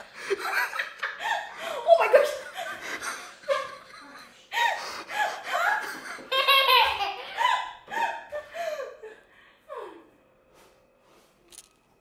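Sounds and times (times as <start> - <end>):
young child laughing: 5.6 - 8.4.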